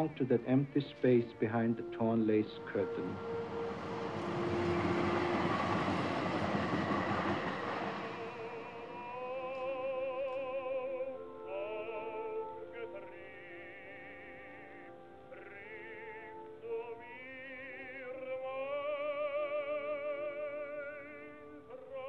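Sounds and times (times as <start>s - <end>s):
operatic singing in film music: 0.0s - 22.0s
broad rushing noise: 1.9s - 9.2s.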